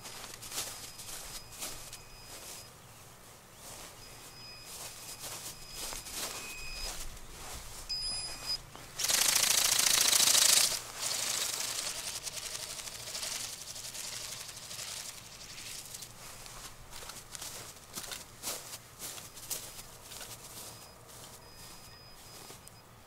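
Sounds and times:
flapping wings rattling: 0:08.9 - 0:20.9.

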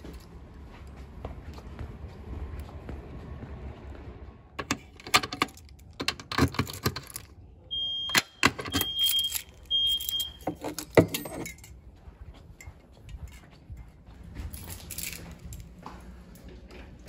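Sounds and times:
keys jangling: 0:04.6 - 0:07.4, 0:08.4 - 0:15.9
short high beeps: 0:07.7 - 0:10.6.

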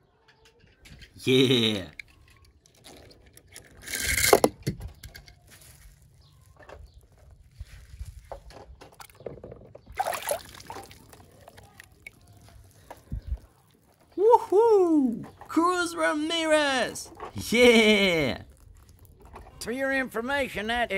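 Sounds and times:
plastic toy cars clicking: 0:01.8 - 0:05.5
water splashing and sloshing: 0:08.5 - 0:14.1.

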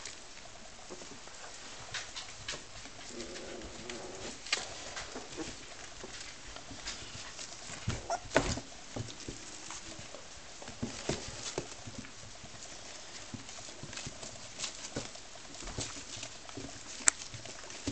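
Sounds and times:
puppy paws tapping and scratching: 0:00.0 - 0:17.9
puppy squeak: 0:08.1 - 0:08.3.

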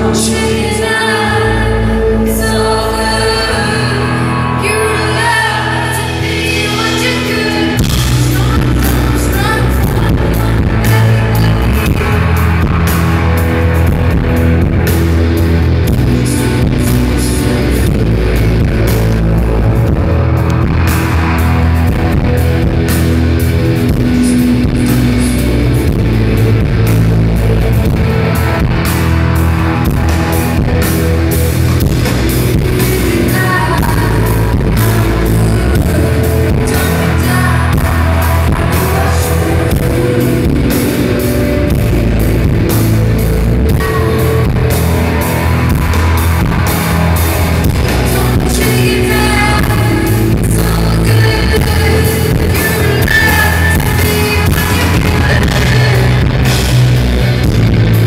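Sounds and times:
woman singing into a microphone: 0:00.0 - 0:13.0, 0:32.5 - 0:42.5, 0:43.6 - 0:45.5, 0:47.7 - 0:56.8
bass guitar: 0:00.0 - 0:58.0
drums: 0:00.0 - 0:58.0
electric guitars: 0:00.0 - 0:58.0.

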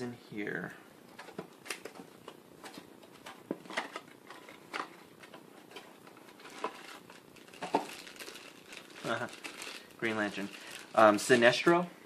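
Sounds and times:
plastic crackles: 0:01.2 - 0:11.9
plastic packaging rustling: 0:02.7 - 0:11.9.

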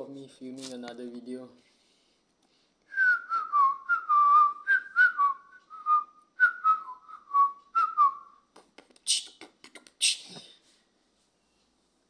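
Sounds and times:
person whistling a tune: 0:02.9 - 0:08.4.

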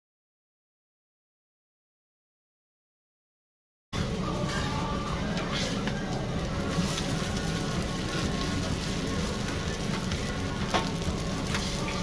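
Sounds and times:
noodles sizzling on griddle: 0:05.4 - 0:12.0.

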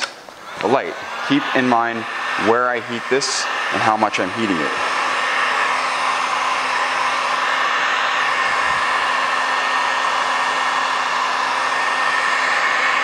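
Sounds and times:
heat gun blowing air: 0:00.0 - 0:13.0.

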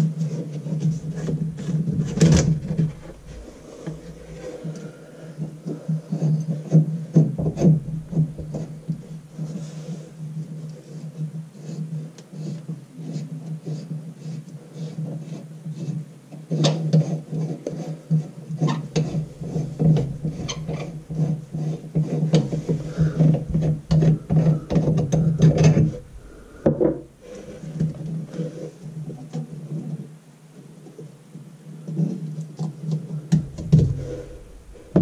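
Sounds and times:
metal drain parts clicking and scraping: 0:00.8 - 0:04.8, 0:06.5 - 0:09.1, 0:18.6 - 0:27.0, 0:33.3 - 0:35.0
steady low hum: 0:00.8 - 0:10.5, 0:18.9 - 0:28.4, 0:33.1 - 0:35.0.

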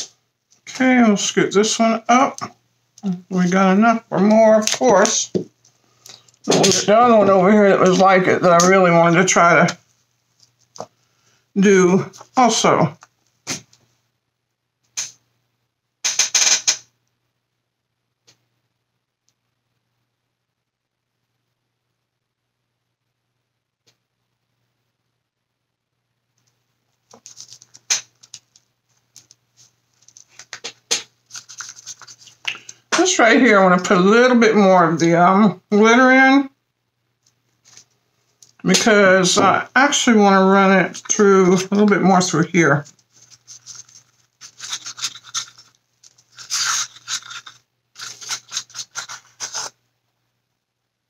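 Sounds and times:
stir stick scraping in cup: 0:31.3 - 0:32.5, 0:42.9 - 0:49.8.

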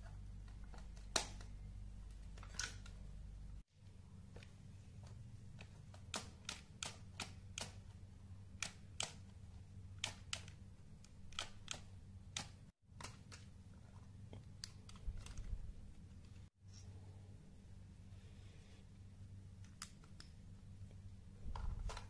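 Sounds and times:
plastic parts clicking: 0:00.4 - 0:03.0, 0:05.0 - 0:09.4, 0:10.0 - 0:13.6.

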